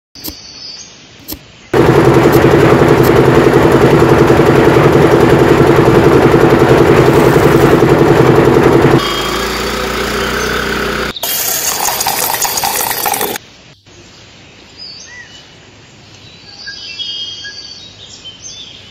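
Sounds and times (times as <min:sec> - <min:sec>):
engine running with fast pulse: 0:01.8 - 0:13.4.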